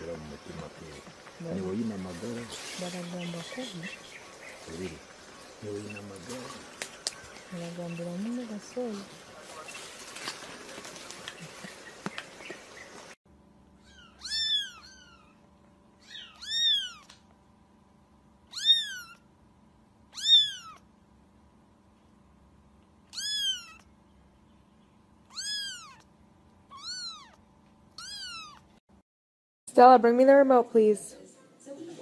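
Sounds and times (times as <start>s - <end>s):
cat meowing: 13.8s - 15.4s, 16.0s - 17.1s, 18.5s - 19.2s, 20.1s - 20.8s, 23.1s - 23.8s, 25.3s - 26.1s, 26.7s - 27.4s, 28.0s - 28.7s.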